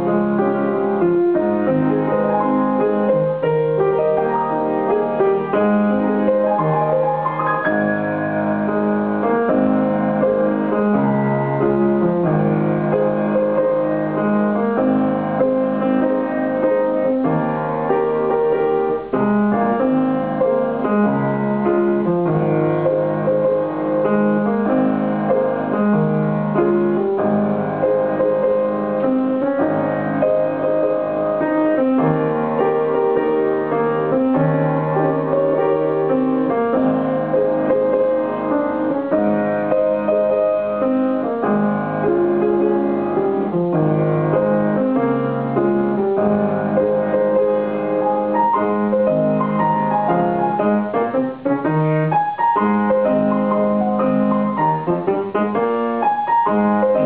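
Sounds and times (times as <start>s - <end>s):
grand piano playing: 0.0s - 57.0s.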